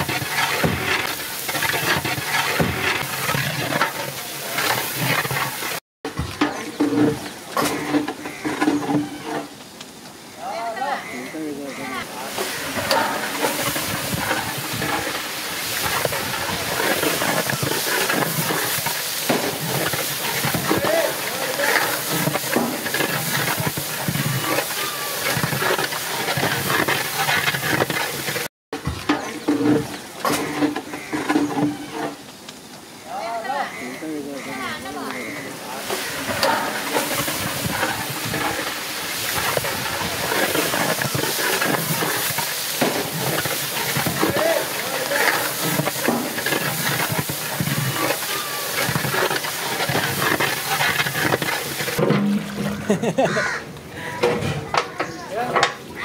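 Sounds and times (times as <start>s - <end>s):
wood fire hissing and crackling: 0.0s - 56.0s
ladle stirring gravy in pot: 12.3s - 28.5s, 35.8s - 52.0s.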